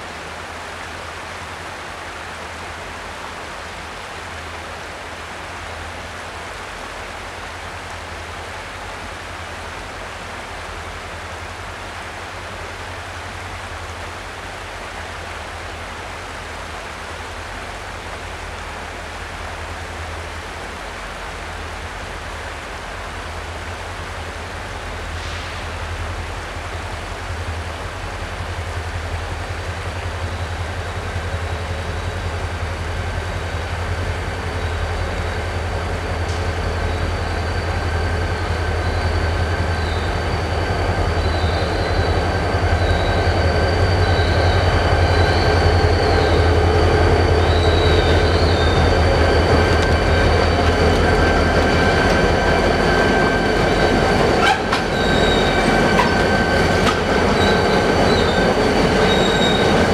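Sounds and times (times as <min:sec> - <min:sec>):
diesel locomotives droning: 0:05.4 - 0:59.9
high wavering wheel squeals: 0:33.9 - 0:59.9.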